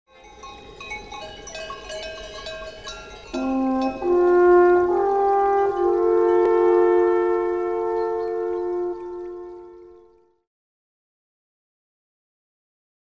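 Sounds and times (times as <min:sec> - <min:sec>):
background music: 0:03.4 - 0:10.1.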